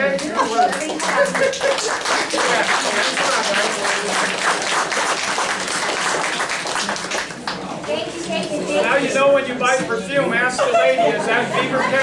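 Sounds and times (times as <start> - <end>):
audience applauding: 0.1 - 7.7.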